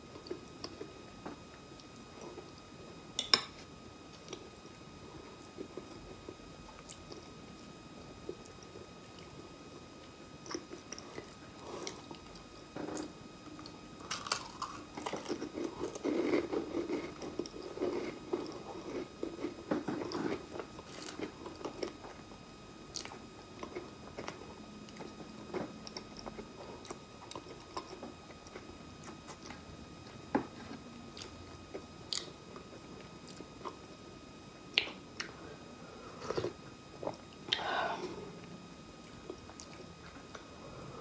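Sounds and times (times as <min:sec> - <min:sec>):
chewing crackers: 0:14.0 - 0:22.2.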